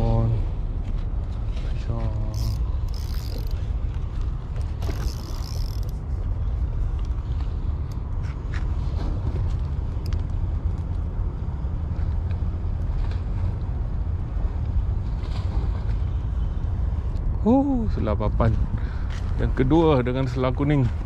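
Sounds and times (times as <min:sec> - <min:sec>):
steady low rumble: 0:00.0 - 0:21.0
fishing reel cranking: 0:02.3 - 0:03.7, 0:04.8 - 0:06.0.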